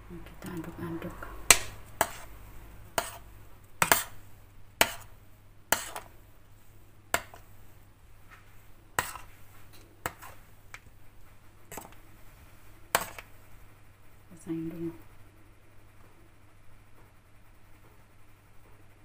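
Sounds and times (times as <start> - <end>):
spoon stirring thick sauce: 0.2 - 12.3, 12.9 - 13.4.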